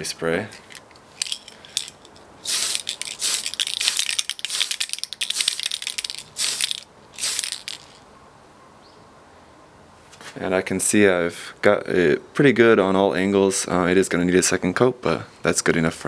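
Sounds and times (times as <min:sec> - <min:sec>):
spray paint can hissing: 0:02.4 - 0:08.0.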